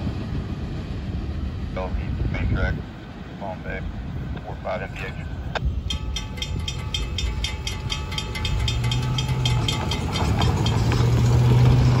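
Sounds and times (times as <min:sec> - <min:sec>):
low steady engine hum: 0:00.0 - 0:12.0
crossing warning bell ringing: 0:05.1 - 0:12.0.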